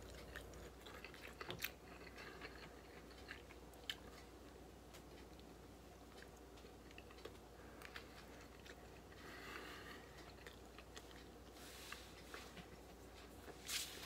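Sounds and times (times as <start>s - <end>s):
chewing with wet mouth clicks: 0.0s - 4.3s, 6.1s - 9.3s, 10.1s - 11.4s.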